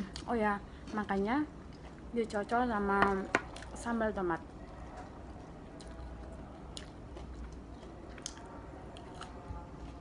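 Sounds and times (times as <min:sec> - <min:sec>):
person chewing crispy food: 0:04.5 - 0:10.0.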